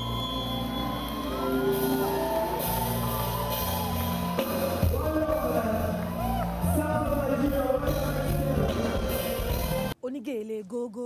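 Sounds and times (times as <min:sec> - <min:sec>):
drum kit: 0:01.6 - 0:10.0
bass guitar: 0:02.7 - 0:10.0.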